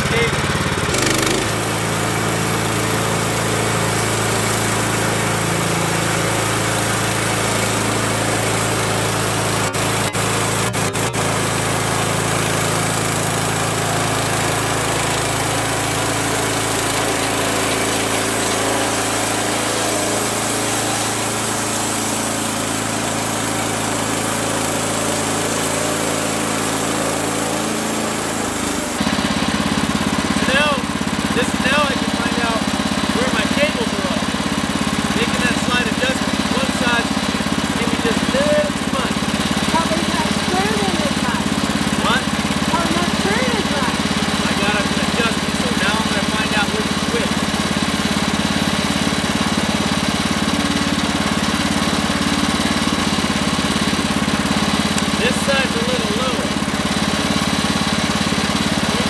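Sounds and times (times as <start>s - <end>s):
band blade cutting log: 0.0s - 29.7s
sawmill engine running: 0.0s - 59.0s.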